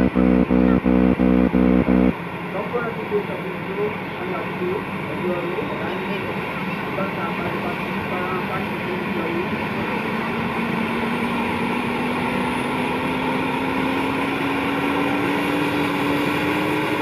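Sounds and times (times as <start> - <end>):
rising helicopter whine: 0.0 - 2.1.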